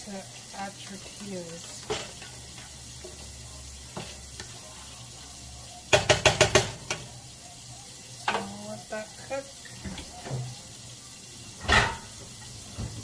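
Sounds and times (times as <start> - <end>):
chicken sizzling in skillet: 0.0 - 13.0
spatula tapping pan: 0.8 - 4.6, 5.8 - 7.2.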